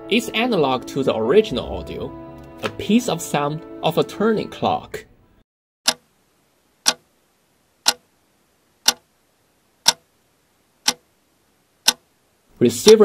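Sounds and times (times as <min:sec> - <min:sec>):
clock ticking: 0:05.9 - 0:06.1, 0:06.8 - 0:07.0, 0:07.8 - 0:08.1, 0:08.8 - 0:09.1, 0:09.8 - 0:10.1, 0:10.8 - 0:11.1, 0:11.8 - 0:12.1, 0:12.8 - 0:13.0.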